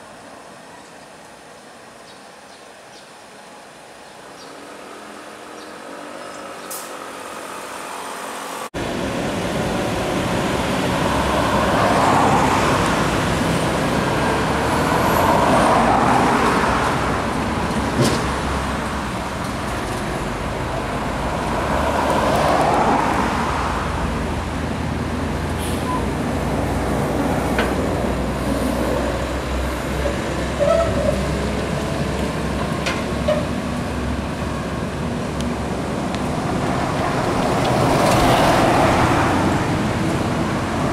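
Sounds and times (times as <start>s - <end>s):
diesel truck engine rumble: 8.7s - 40.9s.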